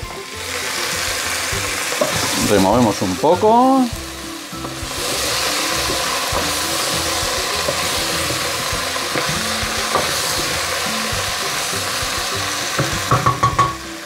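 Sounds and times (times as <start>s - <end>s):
vegetables sizzling in oil: 0.0s - 14.0s
spoon knocking against pot: 12.8s - 13.8s.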